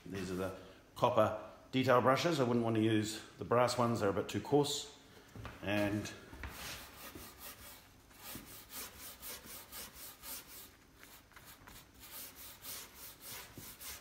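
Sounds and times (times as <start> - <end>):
wire brush scrubbing wood: 6.6 - 14.0.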